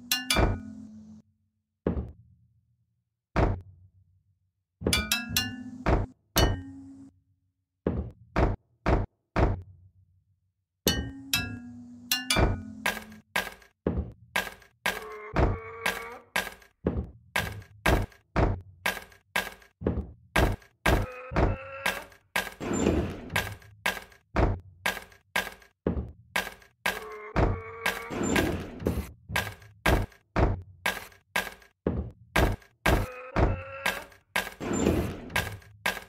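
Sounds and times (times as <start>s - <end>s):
rhythmic knocks and thuds: 12.4s - 21.5s, 22.3s - 33.1s.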